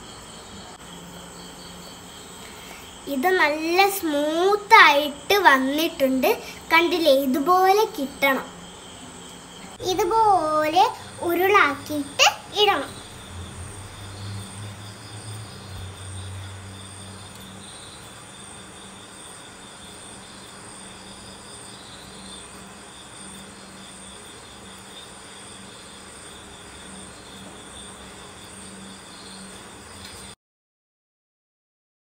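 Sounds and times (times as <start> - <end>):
background hum and hiss: 0.0 - 30.4
deeper hum: 9.6 - 18.0.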